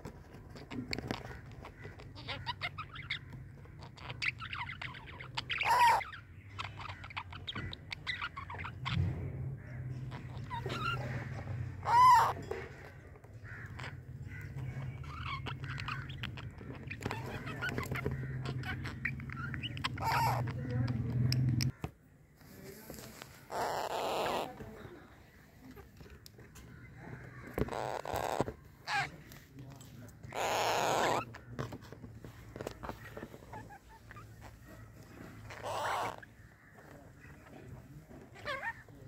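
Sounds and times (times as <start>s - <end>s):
parrots chattering: 0.0s - 21.9s, 22.8s - 39.0s
loud parrot calls: 0.6s - 9.0s, 9.6s - 12.8s, 13.4s - 21.1s, 23.4s - 24.6s, 27.2s - 29.2s, 30.3s - 31.4s, 32.8s - 37.4s, 38.3s - 38.9s.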